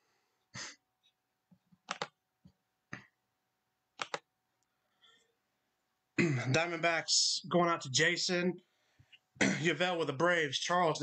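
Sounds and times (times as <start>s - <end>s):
computer mouse clicking: 1.8s - 2.2s, 4.0s - 4.3s.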